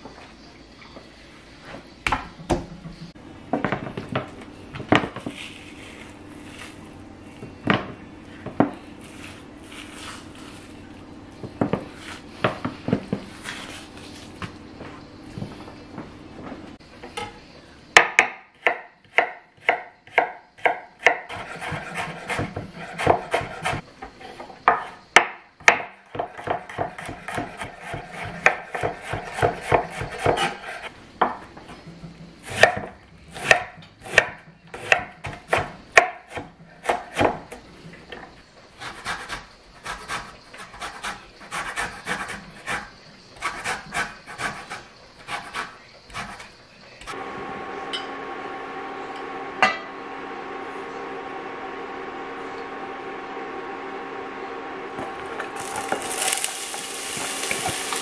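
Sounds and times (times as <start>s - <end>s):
knife chopping on wooden board: 18.0s - 23.8s, 24.7s - 31.4s, 32.5s - 37.4s.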